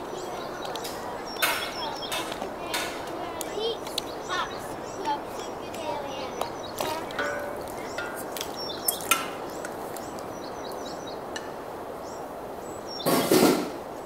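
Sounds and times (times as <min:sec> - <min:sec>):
faint bird chirps: 0:00.0 - 0:11.3
background hiss: 0:00.0 - 0:14.0
ladle clinking on ceramic bowl: 0:07.0 - 0:09.4.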